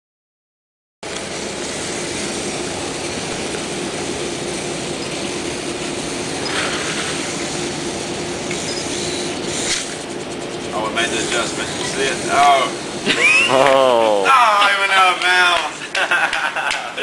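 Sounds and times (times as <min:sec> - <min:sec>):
robot servos whirring: 0:04.9 - 0:12.7.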